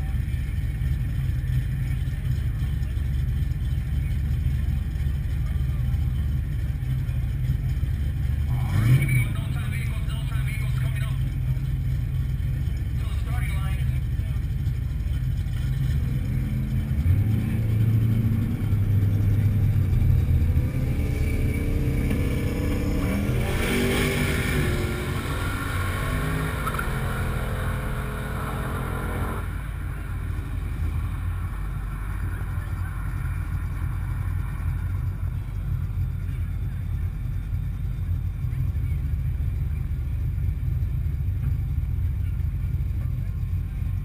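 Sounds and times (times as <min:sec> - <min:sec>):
car engines idling: 0:00.0 - 0:44.0
engine revving up: 0:15.9 - 0:29.7.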